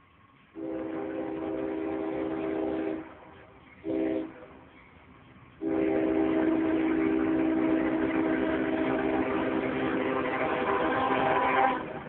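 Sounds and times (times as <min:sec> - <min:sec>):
locomotive air horn blasts: 0:00.6 - 0:03.2, 0:03.8 - 0:04.5, 0:05.6 - 0:12.0.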